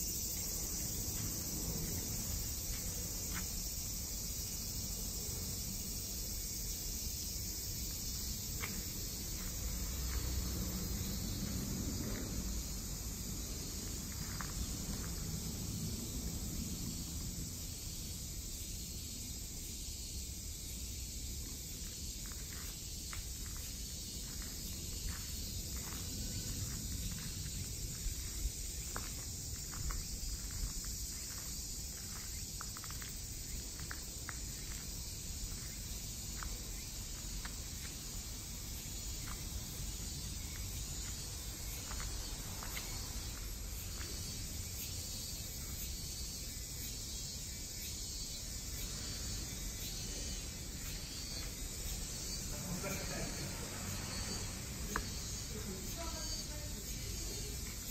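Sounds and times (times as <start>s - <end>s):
insects hissing: 0.0s - 57.9s
light footsteps: 0.3s - 4.1s, 7.8s - 15.8s, 21.8s - 44.4s.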